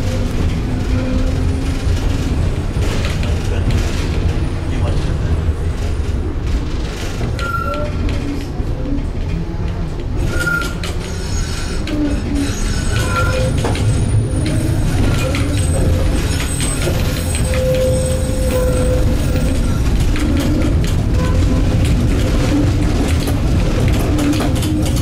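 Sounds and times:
tram wheels rumbling on rails: 0:00.0 - 0:25.0
high wheel squeals: 0:07.4 - 0:08.4, 0:10.2 - 0:21.8.

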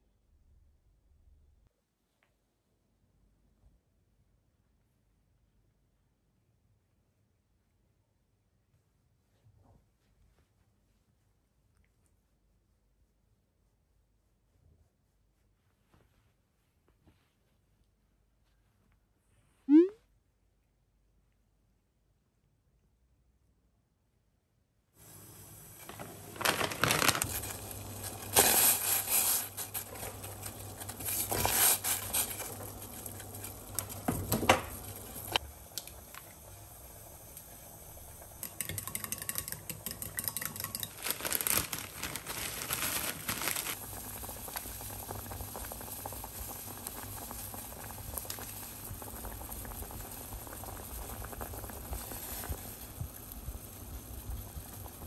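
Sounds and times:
soup boiling in pot: 0:25.0 - 0:55.0
plastic bag crinkling: 0:25.8 - 0:34.0, 0:40.6 - 0:43.9.

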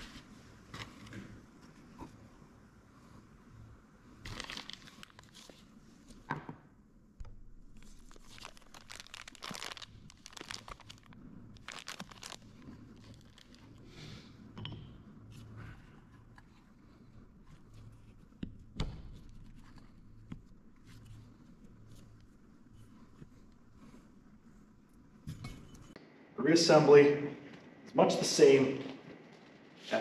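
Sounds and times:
plastic bag crinkling: 0:04.2 - 0:05.6, 0:07.8 - 0:13.8.

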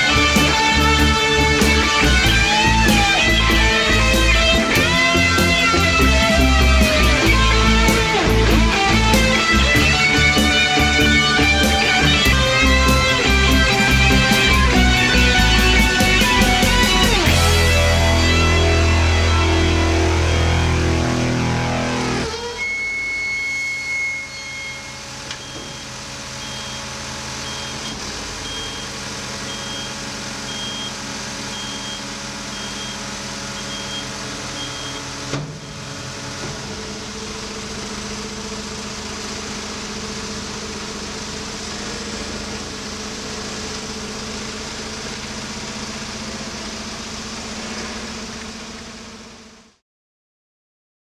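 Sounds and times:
hydraulics running: 0:00.0 - 0:20.7, 0:22.2 - 0:49.5
street sweeper running: 0:00.0 - 0:49.7
repeating beep: 0:33.6 - 0:35.0.

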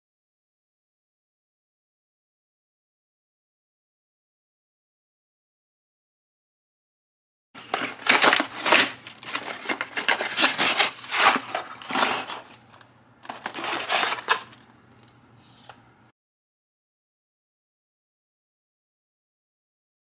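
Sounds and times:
cardboard box rustling and scraping: 0:07.6 - 0:12.6, 0:13.3 - 0:14.5.

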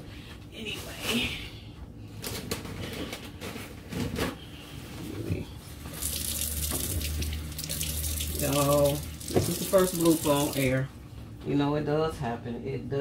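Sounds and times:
tap water running into sink: 0:05.9 - 0:10.8.

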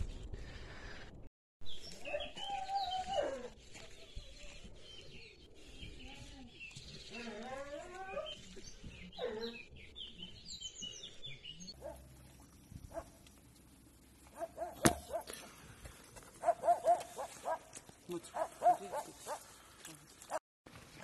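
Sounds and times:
birds chirping: 0:01.7 - 0:13.2, 0:16.4 - 0:19.7.

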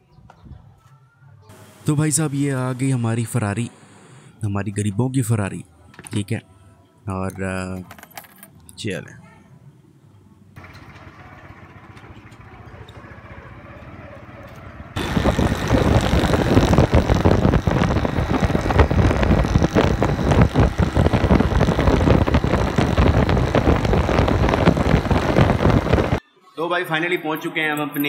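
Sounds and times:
motorcycle engine running: 0:10.6 - 0:26.2
wind buffeting microphone: 0:14.9 - 0:26.2.

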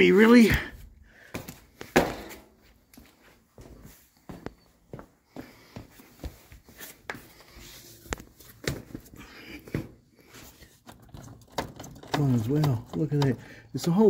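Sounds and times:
light clicks and knocks: 0:10.8 - 0:14.0.

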